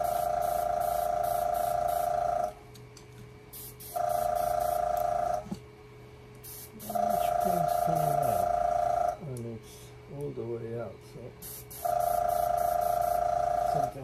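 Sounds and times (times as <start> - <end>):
airbrush compressor humming: 0.0 - 2.6, 3.5 - 5.6, 6.4 - 9.8, 11.4 - 14.0.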